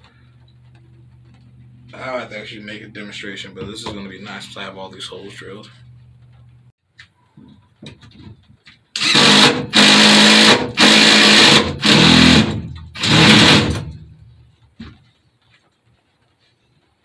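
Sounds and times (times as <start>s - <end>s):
cordless drill bursts: 9.0s - 13.9s.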